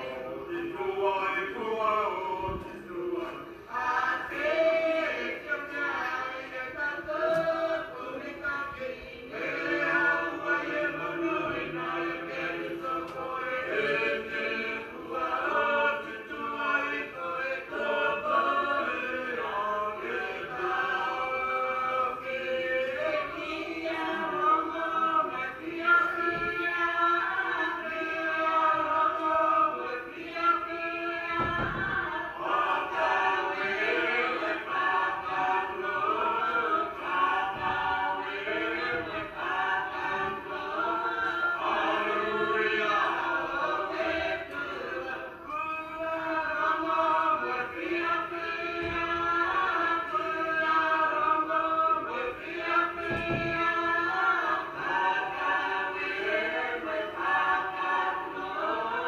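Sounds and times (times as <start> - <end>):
choir singing a hymn: 0.0 - 59.0
low thump: 31.4 - 32.2, 53.0 - 53.6.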